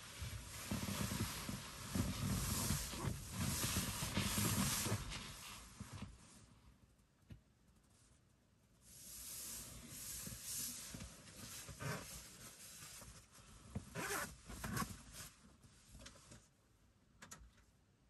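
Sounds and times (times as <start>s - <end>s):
fabric rustling and scraping: 0.0s - 6.5s, 8.9s - 16.5s.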